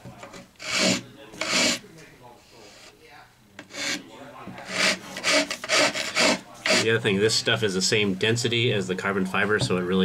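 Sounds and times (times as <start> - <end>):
hand file rasping: 0.3 - 1.8, 3.6 - 7.0.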